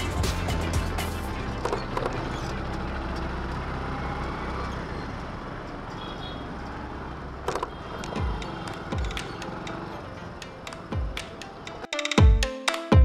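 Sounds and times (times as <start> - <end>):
street traffic: 0.0 - 12.1
sharp knocks: 7.5 - 9.8
motorcycle engine running: 7.6 - 11.2.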